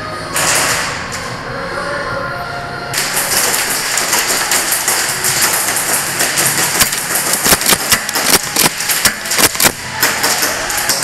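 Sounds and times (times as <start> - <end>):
airsoft gunfire: 3.0 - 11.0
pellets clattering on plywood: 3.0 - 11.0.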